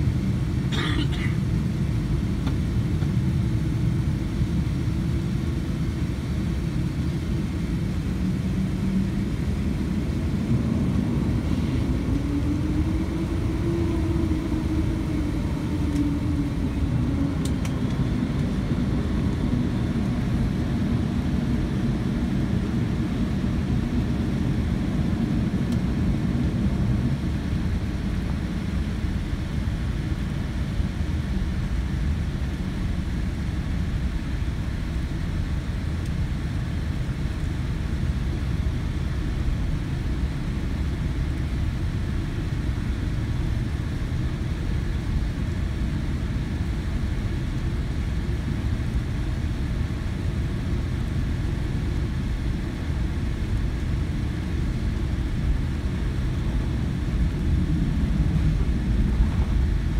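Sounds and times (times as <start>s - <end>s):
aircraft cabin rumble: 0.0s - 59.9s.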